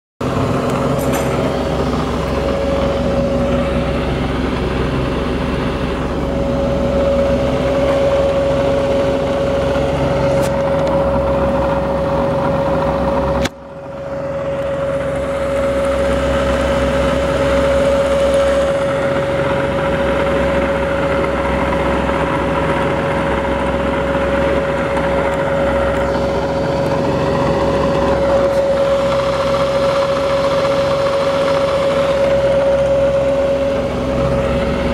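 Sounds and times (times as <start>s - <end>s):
milling machine whine and hum: 0.2s - 34.9s.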